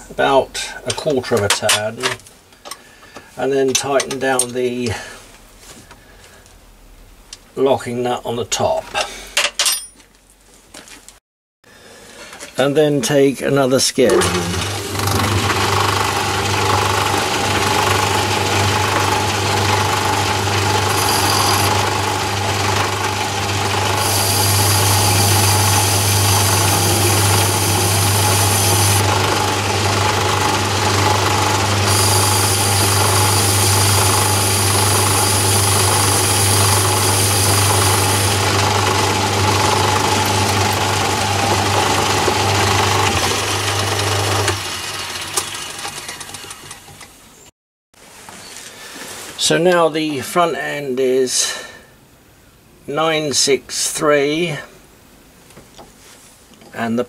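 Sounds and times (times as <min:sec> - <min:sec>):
lathe motor hum: 0:14.1 - 0:46.4
lathe running down: 0:14.1 - 0:46.8.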